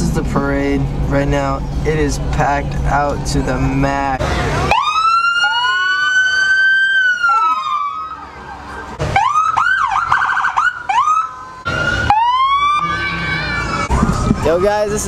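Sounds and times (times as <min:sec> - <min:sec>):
police sirens wailing and yelping: 0:04.2 - 0:15.0.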